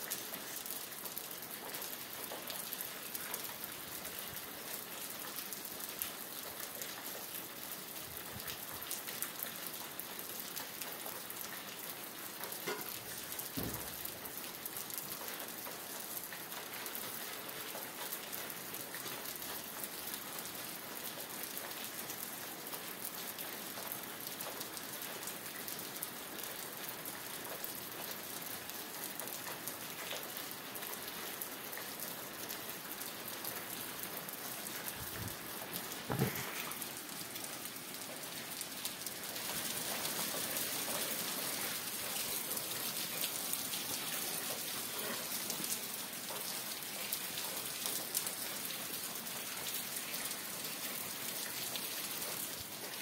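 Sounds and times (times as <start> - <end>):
rain falling: 0.0 - 53.0
thud: 13.6 - 13.9, 36.1 - 36.5.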